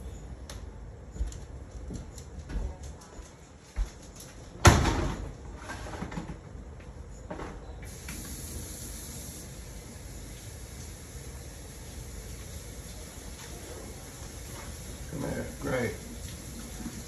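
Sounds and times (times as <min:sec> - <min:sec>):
faint steady hiss: 0:07.8 - 0:17.0.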